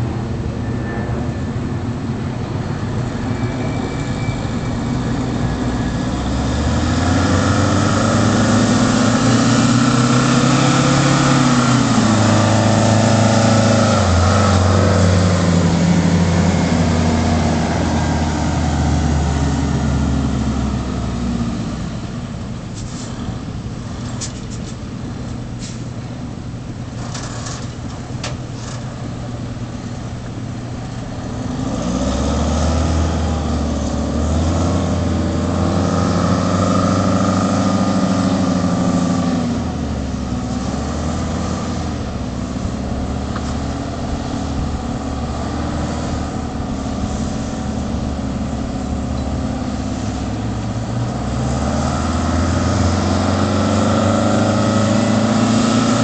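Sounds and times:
diesel truck driving by: 0.0s - 56.0s.

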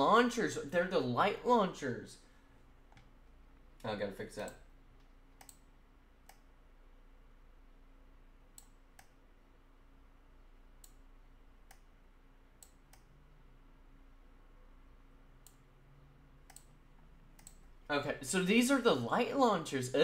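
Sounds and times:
low room hum: 0.0s - 20.0s
computer mouse clicks: 4.5s - 6.5s, 8.6s - 9.2s, 10.8s - 11.0s, 11.6s - 11.9s, 12.6s - 13.1s, 16.4s - 16.8s, 17.4s - 17.7s.

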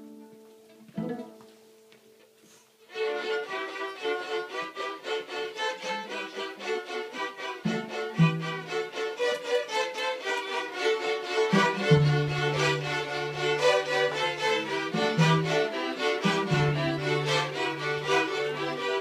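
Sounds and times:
string ensemble playing: 2.9s - 19.0s
cello long low notes: 6.4s - 9.4s, 10.3s - 19.0s.

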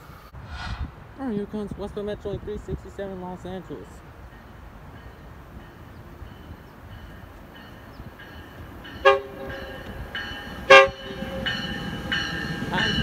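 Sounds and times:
train whine: 0.0s - 1.2s, 8.3s - 13.0s
train horn toots: 9.0s - 10.0s, 10.6s - 11.5s.

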